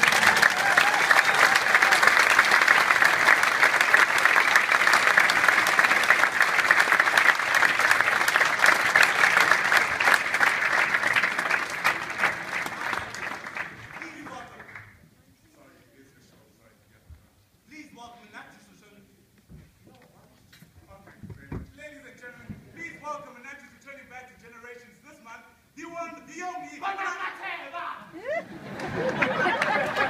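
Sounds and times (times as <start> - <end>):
large audience applauding: 0.0 - 15.0, 28.4 - 30.0.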